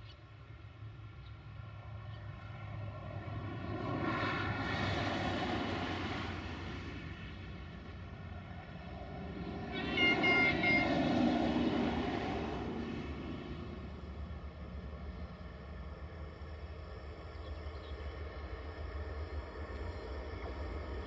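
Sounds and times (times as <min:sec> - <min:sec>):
rushing noise: 0:03.0 - 0:21.0
drone propellers whining: 0:03.4 - 0:21.0
short high beeps: 0:09.9 - 0:10.9.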